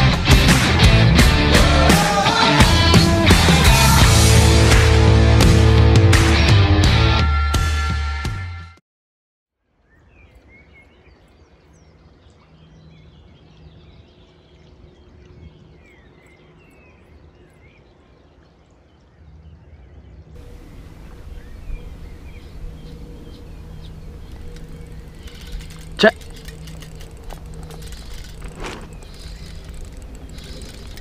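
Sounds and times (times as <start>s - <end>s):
rock music: 0.0s - 8.7s
birds chirping and singing: 19.9s - 31.0s
low background rumble: 20.4s - 31.0s.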